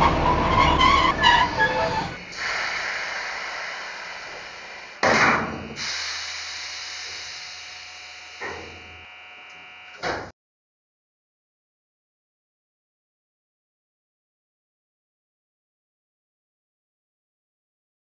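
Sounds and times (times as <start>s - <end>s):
hiss bursts: 1.4s - 5.1s.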